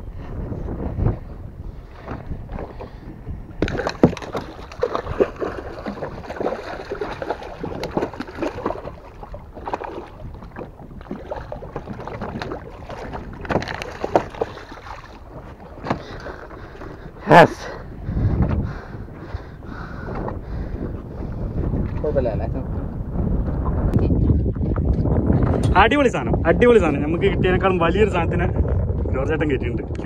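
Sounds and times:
water sloshing against boat: 0.0 - 25.9
wind buffeting microphone: 0.0 - 30.0
fish thrashing and splashing: 3.6 - 17.1.

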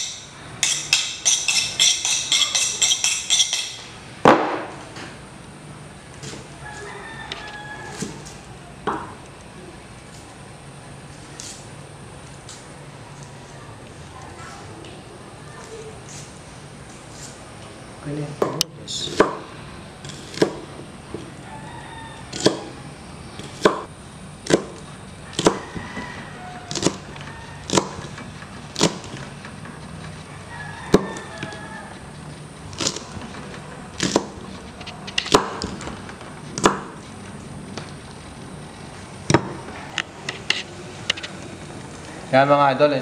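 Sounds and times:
knife chopping on wooden board: 20.1 - 20.7, 22.3 - 22.7, 23.4 - 24.8, 25.4 - 25.8, 26.7 - 27.0, 27.7 - 28.2, 32.8 - 34.4, 35.1 - 35.9, 36.5 - 37.0.

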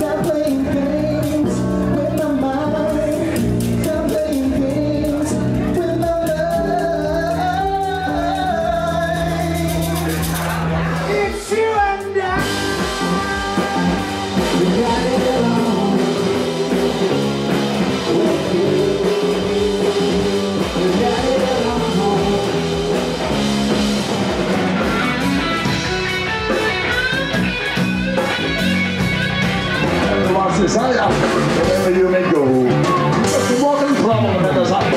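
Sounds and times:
person singing: 0.0 - 24.0
rock band playing live: 0.0 - 34.9.

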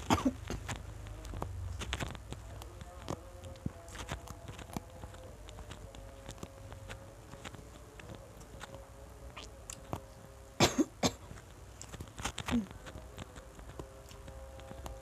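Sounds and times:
person coughing: 0.0 - 0.7, 10.6 - 11.3.

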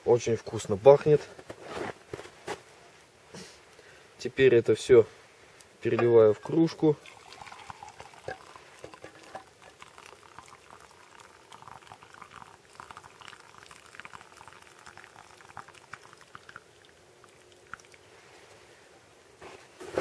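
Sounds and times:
tea trickling into mug: 6.4 - 18.6.

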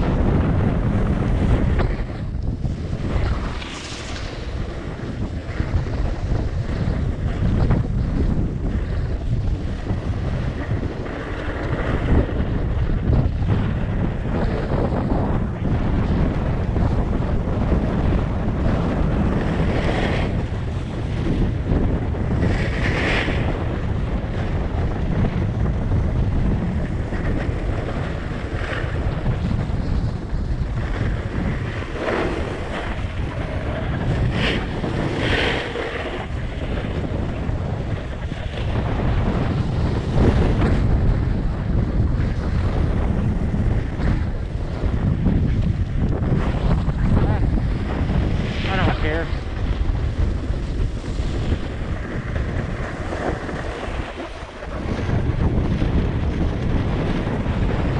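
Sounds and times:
snowboard edge scraping snow: 0.0 - 12.4, 30.8 - 57.9
wind buffeting microphone: 0.0 - 57.9.

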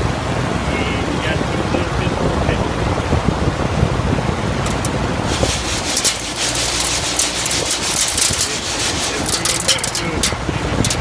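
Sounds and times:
fan airflow buffeting microphone: 0.0 - 11.0
peas rattling on wire screen: 4.7 - 11.0.

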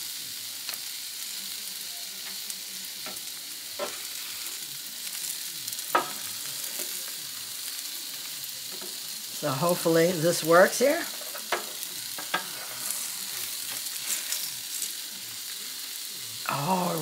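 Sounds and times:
egg sizzling on a griddle: 0.0 - 17.0
spatula scraping a griddle: 3.0 - 4.6, 11.1 - 15.1.

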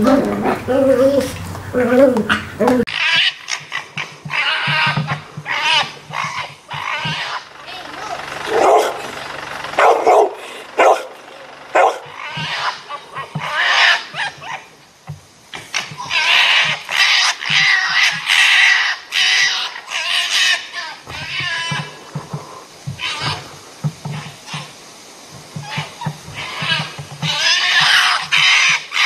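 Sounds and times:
low grunting: 0.0 - 2.9, 6.9 - 13.3
foxes screeching and chattering: 0.0 - 14.8, 15.5 - 24.8, 25.5 - 29.0.

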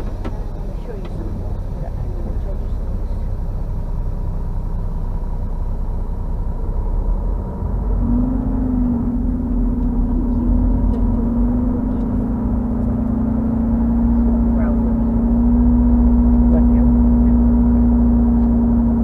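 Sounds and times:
diesel truck engine rumbling: 0.0 - 19.0
steady humming drone: 0.0 - 19.0.

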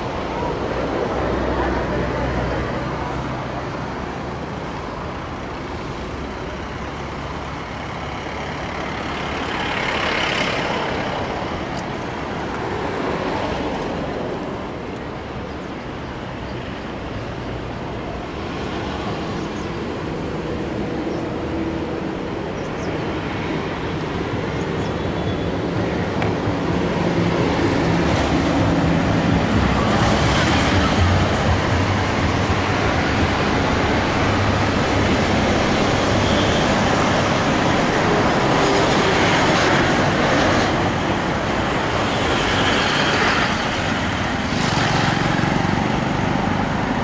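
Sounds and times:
highway traffic: 0.0 - 47.0.

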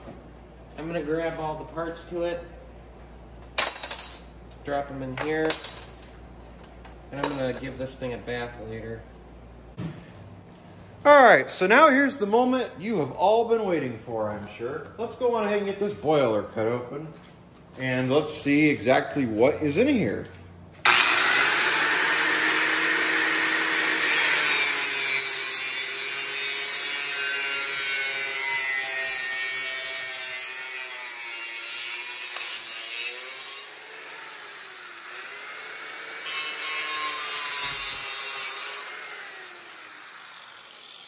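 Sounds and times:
angle grinder cutting metal: 20.9 - 41.0.

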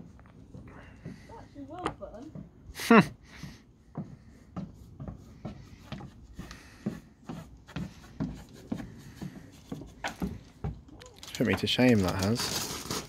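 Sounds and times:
shoes knocking on wooden planks: 0.0 - 11.9.

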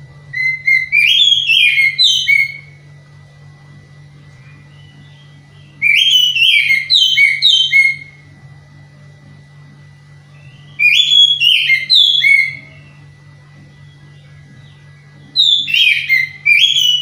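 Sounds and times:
bird singing whistled notes: 0.4 - 2.7, 4.5 - 8.2, 10.3 - 13.0, 13.9 - 17.0.

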